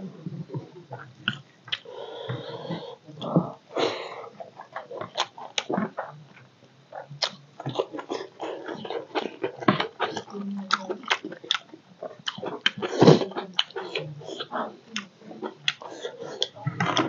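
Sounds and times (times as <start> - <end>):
man chewing food wetly: 0.5 - 17.0
breathy squelching: 1.7 - 4.7.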